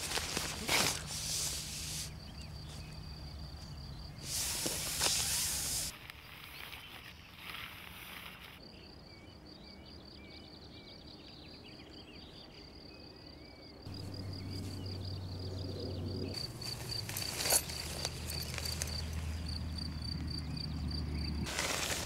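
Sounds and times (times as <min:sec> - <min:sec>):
insect chirping: 0:00.0 - 0:22.0
faint bird chirps: 0:06.2 - 0:16.8
low hum: 0:13.9 - 0:21.5.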